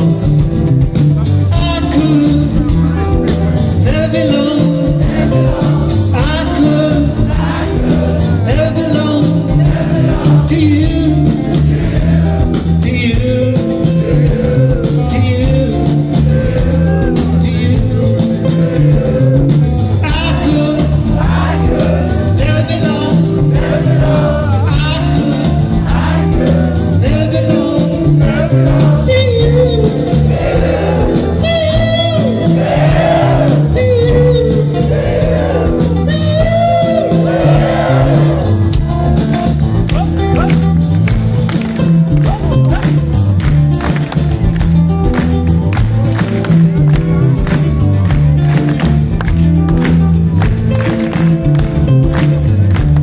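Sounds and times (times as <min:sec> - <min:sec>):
person singing: 0:00.0 - 0:11.6, 0:12.8 - 0:38.6
acoustic guitars: 0:00.0 - 0:53.0
electric bass: 0:00.0 - 0:53.0.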